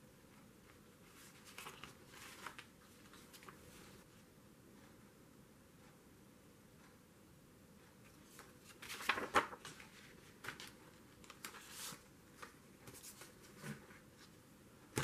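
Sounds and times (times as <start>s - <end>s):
paper brochure rustling: 0.6s - 4.0s, 8.0s - 15.0s.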